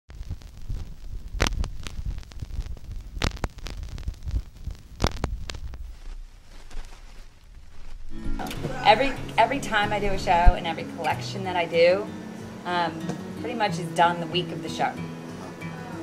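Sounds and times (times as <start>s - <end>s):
low rumbling hum: 0.2s - 10.8s.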